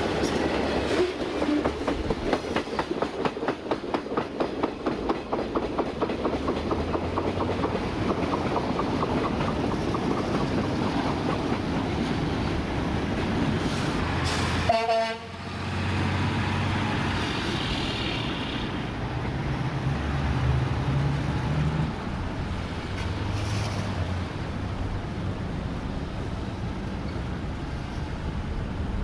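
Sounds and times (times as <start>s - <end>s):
wind hiss: 0.0s - 14.8s, 15.4s - 29.0s
diesel train horn blast: 14.2s - 15.6s.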